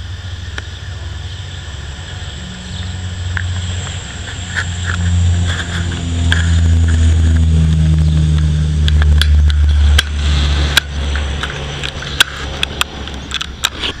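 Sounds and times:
propeller aircraft drone: 0.0s - 14.0s
sharp clicks: 8.3s - 14.0s.

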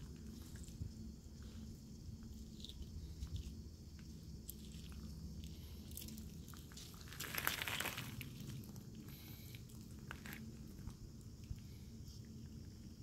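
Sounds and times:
paws crunching on wet gravel: 4.5s - 9.3s.

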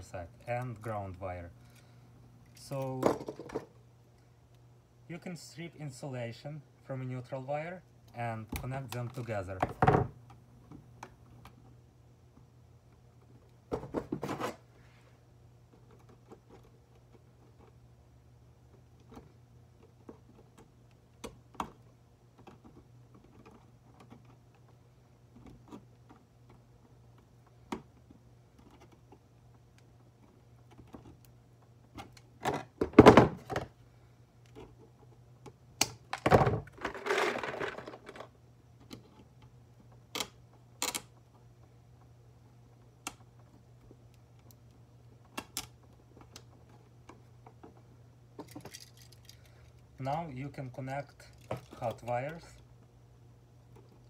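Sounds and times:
wires clattering: 48.4s - 52.6s.

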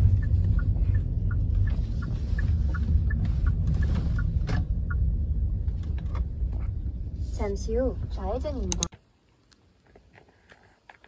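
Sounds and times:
car rumble from inside cabin: 0.0s - 8.8s.

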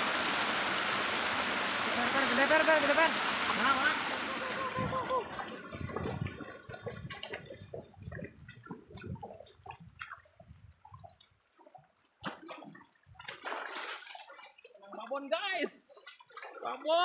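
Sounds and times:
sharp water splash: 0.0s - 10.4s, 12.2s - 14.7s
feet wading through water: 2.6s - 17.0s
hand net sloshing through water: 11.1s - 14.8s, 16.0s - 17.0s.

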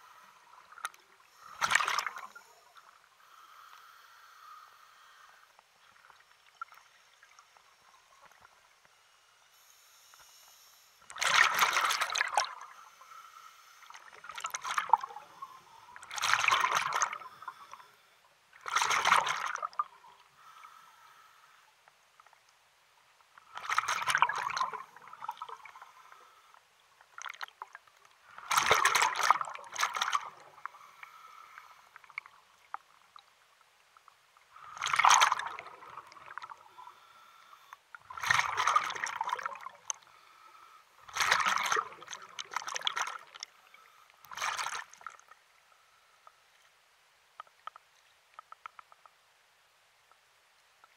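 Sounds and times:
water splashing and sloshing: 0.0s - 3.4s, 11.0s - 17.9s, 18.5s - 20.4s, 23.3s - 40.2s, 41.0s - 45.6s.

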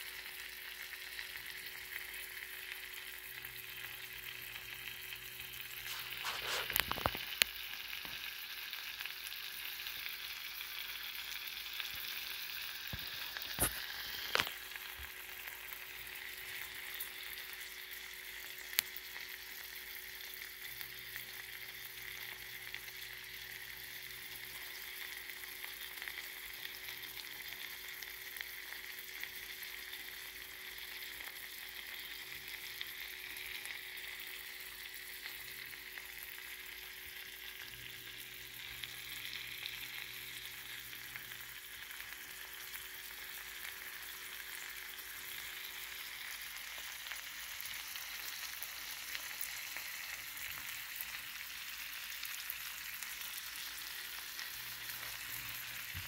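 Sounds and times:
fish sizzling in a pan: 0.0s - 56.0s.

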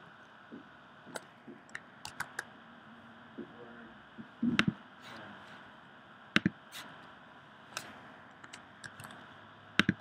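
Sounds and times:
marker scratching on whiteboard: 6.7s - 7.0s.

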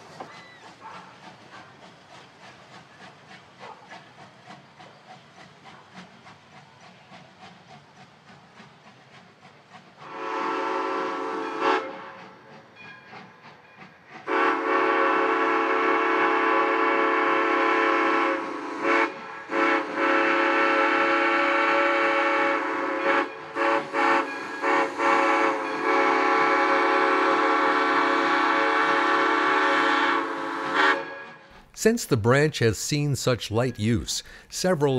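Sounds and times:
steam locomotive chime whistle: 10.0s - 34.9s.

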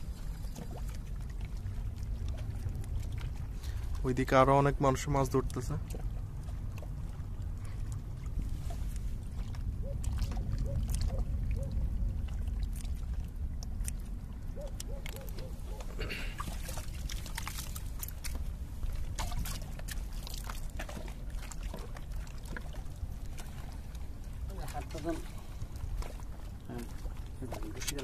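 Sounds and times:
wind rumble on microphone: 0.0s - 4.4s, 5.0s - 16.0s
water lapping against rocks: 0.0s - 28.0s.

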